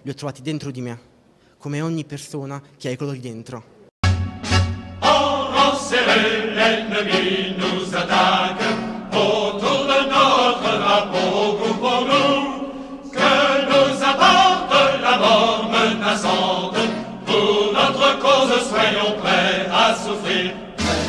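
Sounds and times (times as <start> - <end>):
instrumental backing: 4.0 - 11.5, 18.8 - 21.0
choir singing: 4.5 - 21.0.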